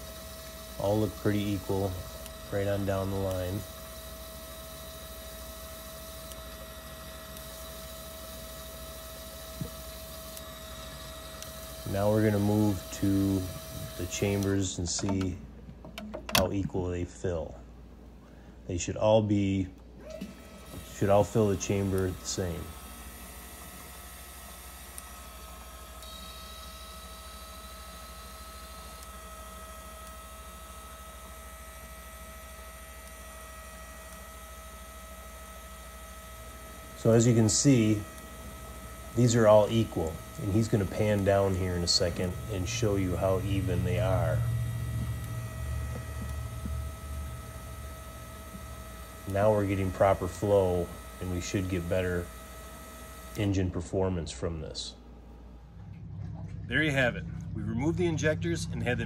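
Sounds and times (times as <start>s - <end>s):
faint high whine: 0.0s - 15.4s, 20.4s - 59.0s
steady hum: 0.0s - 59.0s
faint steady tones: 20.4s - 59.0s.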